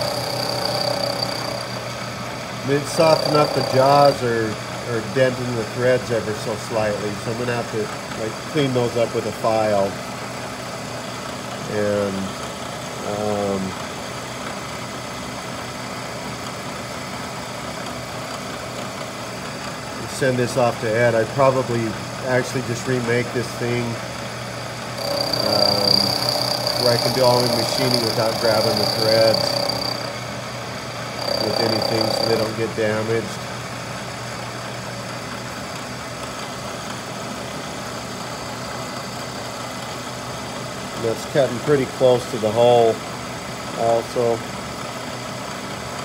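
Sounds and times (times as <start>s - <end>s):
milling machine humming: 0.0s - 8.4s, 20.7s - 35.6s.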